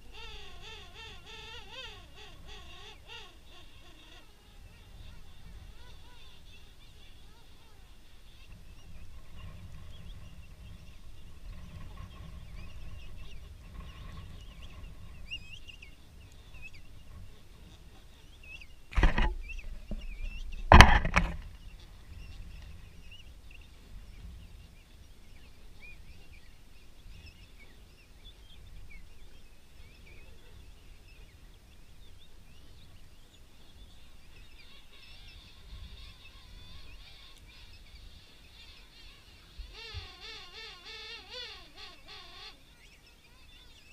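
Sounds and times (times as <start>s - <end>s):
wind rumble on microphone: 2.1s - 40.1s
loud knocks: 20.6s - 21.4s.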